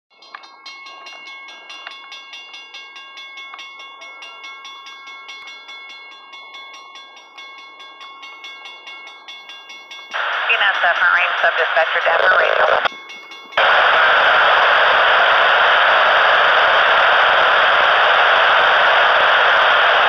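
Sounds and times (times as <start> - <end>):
railroad crossing bell ringing: 0.1 - 13.9.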